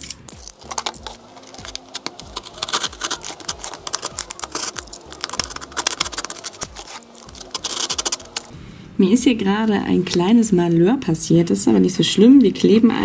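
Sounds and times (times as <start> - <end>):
utility knife cutting cardboard: 0.0 - 8.5.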